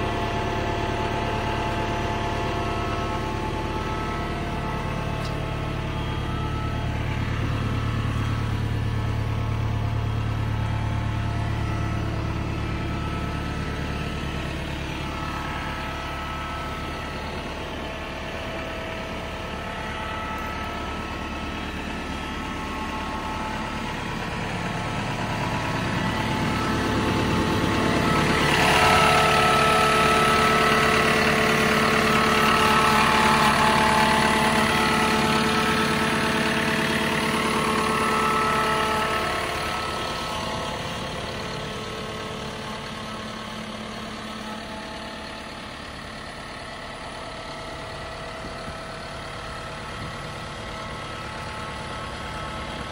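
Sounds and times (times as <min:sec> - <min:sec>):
diesel engine idling: 0:00.0 - 0:52.9.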